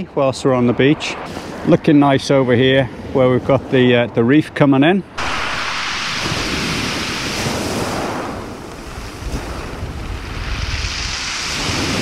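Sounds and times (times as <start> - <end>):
wind buffeting microphone: 5.1 - 12.0
waves breaking on pebble beach: 5.2 - 12.0.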